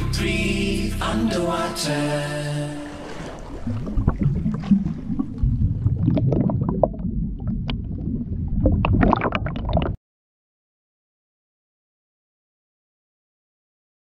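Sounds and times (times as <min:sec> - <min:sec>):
underwater bubbles rumbling and popping: 0:02.8 - 0:10.0.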